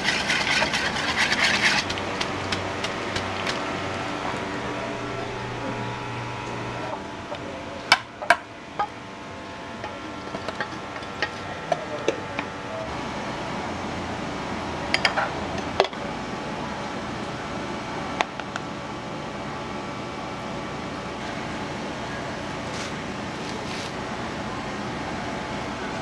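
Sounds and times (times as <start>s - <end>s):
kitchen equipment drone: 0.0s - 26.0s
humming tone: 3.8s - 7.6s.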